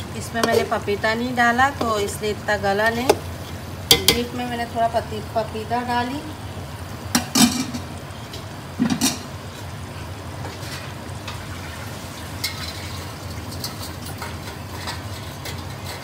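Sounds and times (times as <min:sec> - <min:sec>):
meat sizzling in oil: 0:09.3 - 0:15.4.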